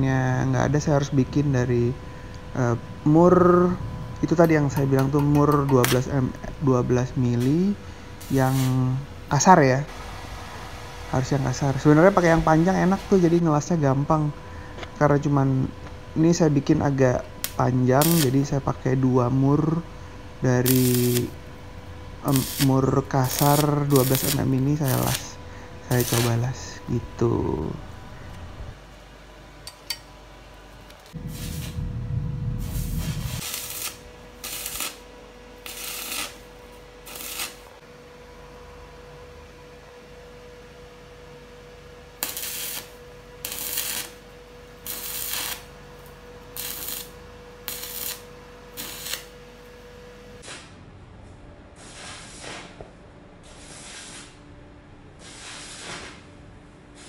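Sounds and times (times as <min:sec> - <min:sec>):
low rumble: 0:00.0 - 0:28.9, 0:31.2 - 0:33.5
faint steady hum: 0:00.0 - 0:51.7
welding arc crackling: 0:04.2 - 0:13.4, 0:17.2 - 0:28.7, 0:31.0 - 0:37.7, 0:42.2 - 0:49.4.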